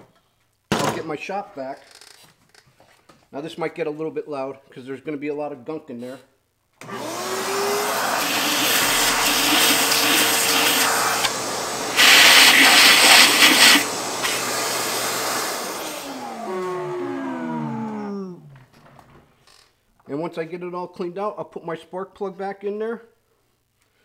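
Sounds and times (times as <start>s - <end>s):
shop vac running: 6.8s - 18.4s.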